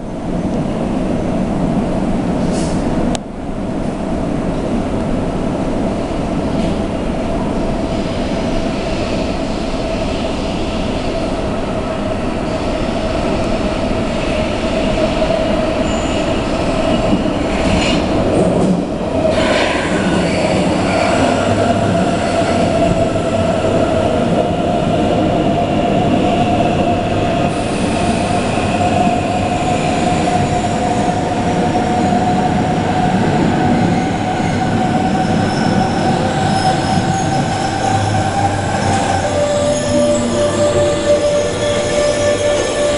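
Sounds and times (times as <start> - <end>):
electric train whine: 5.8 - 42.9
high wheel squeal: 33.8 - 42.9.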